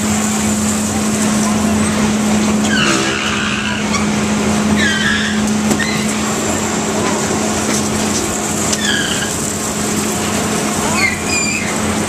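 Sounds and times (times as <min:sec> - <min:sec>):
carnival ride mechanical hum: 0:00.0 - 0:12.0
short high squeals: 0:02.6 - 0:06.4, 0:08.7 - 0:09.4, 0:10.9 - 0:11.9.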